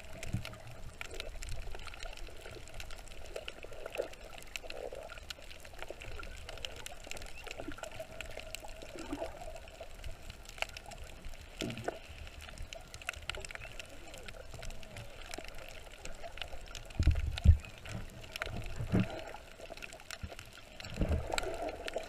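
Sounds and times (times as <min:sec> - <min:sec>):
bubbly gurgles: 0:00.0 - 0:22.0
underwater rush of water: 0:00.0 - 0:22.0.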